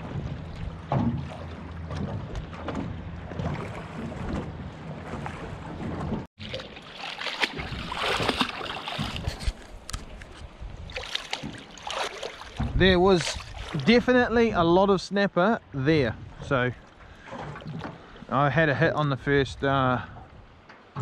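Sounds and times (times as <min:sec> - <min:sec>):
knocks and splashes of net: 0:00.0 - 0:09.7, 0:10.9 - 0:13.9
water sloshing against kayak: 0:00.0 - 0:14.1, 0:15.7 - 0:18.4
water and wind rumbling on hull: 0:00.0 - 0:21.0.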